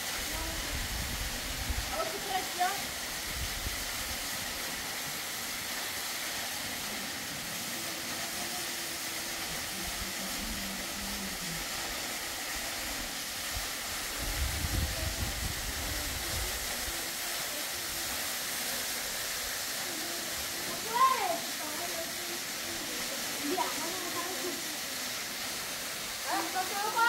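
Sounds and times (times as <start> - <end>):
steady outdoor hiss: 0.0 - 27.0.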